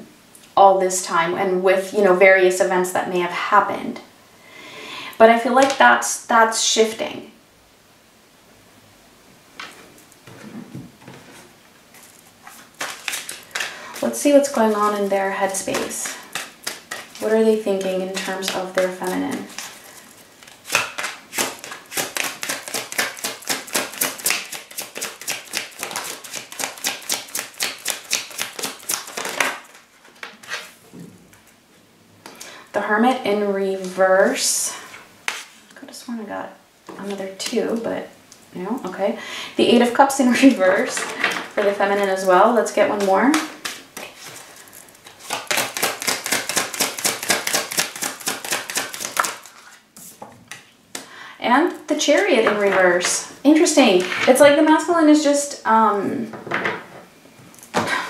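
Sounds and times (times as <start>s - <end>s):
cards being shuffled: 12.0s - 30.8s, 42.9s - 51.0s.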